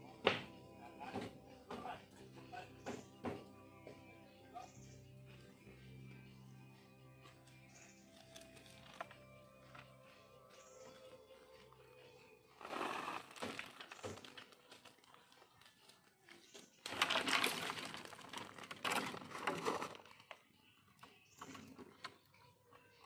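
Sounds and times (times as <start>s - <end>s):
peanuts scattering: 16.8s - 20.1s.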